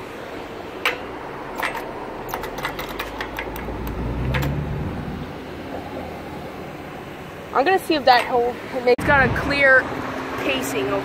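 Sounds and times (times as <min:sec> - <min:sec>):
sharp clicks: 0:00.8 - 0:04.6
car passing by: 0:01.3 - 0:07.6, 0:08.6 - 0:11.0.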